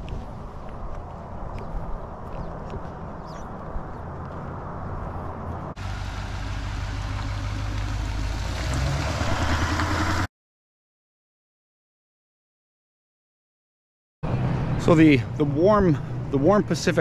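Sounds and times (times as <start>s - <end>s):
low outdoor rumble: 0.0s - 10.3s
pickup truck driving past: 5.7s - 10.3s.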